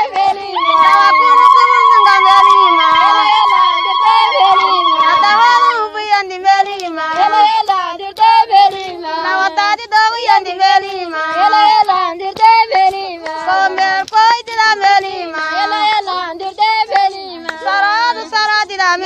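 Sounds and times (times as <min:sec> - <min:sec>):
high voice singing: 0:00.0 - 0:06.1.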